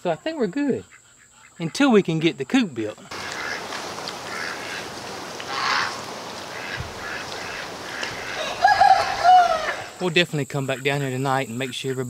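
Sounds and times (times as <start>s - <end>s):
steady background hiss: 0.0s - 12.0s
harsh waterfowl calls: 3.0s - 10.0s.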